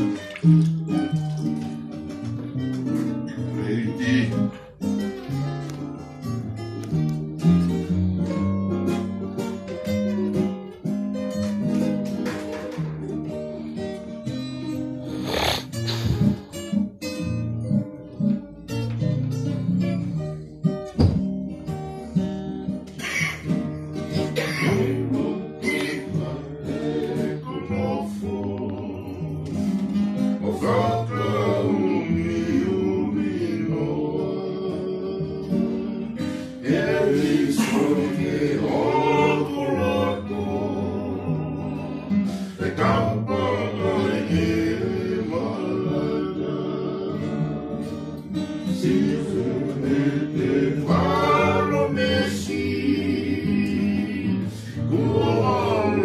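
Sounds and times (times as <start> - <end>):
strummed acoustic guitar: 0.0 - 56.0
group of voices singing: 3.5 - 4.6, 24.1 - 56.0.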